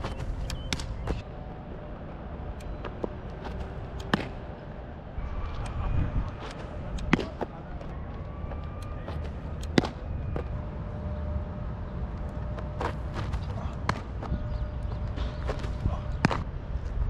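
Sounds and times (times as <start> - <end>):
baseballs popping into a mitt: 0.0 - 1.2, 2.8 - 4.5, 6.5 - 7.5, 9.1 - 10.4
wind rumble on microphone: 4.8 - 7.2, 11.4 - 17.0.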